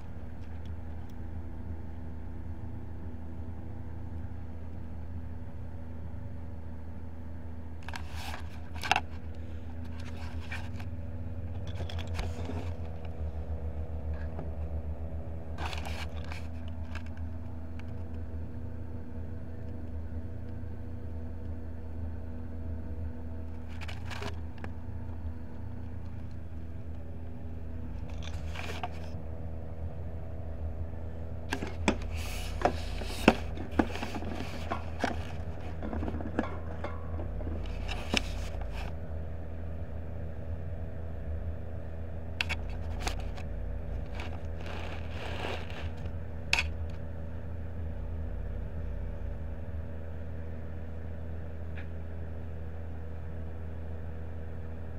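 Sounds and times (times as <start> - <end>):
steady low hum: 0.0 - 54.9
handling and scraping noises: 7.8 - 13.5, 15.5 - 18.2, 23.5 - 29.3, 31.4 - 39.0, 42.4 - 47.0.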